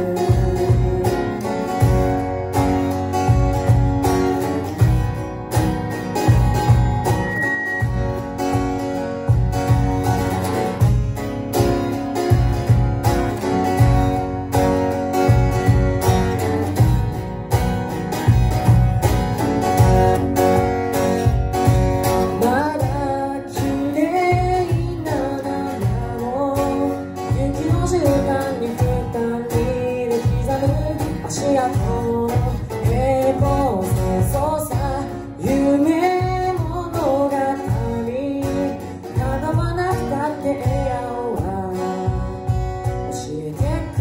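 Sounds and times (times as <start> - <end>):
person singing: 0.0 - 2.3, 22.2 - 44.0
acoustic guitar: 0.0 - 44.0
cajon beat: 0.0 - 44.0.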